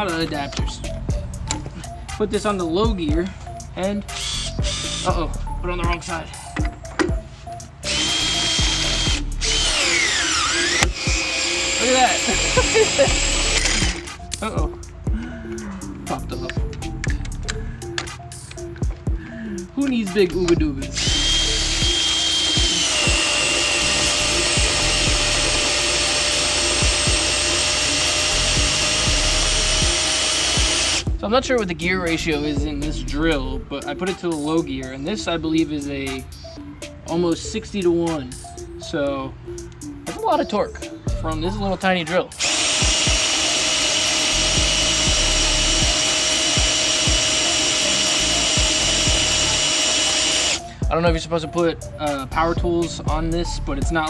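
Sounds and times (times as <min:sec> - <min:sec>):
cordless drill motor whine: 0:04.2 - 0:05.2, 0:07.9 - 0:14.1, 0:21.0 - 0:31.1, 0:42.4 - 0:50.7.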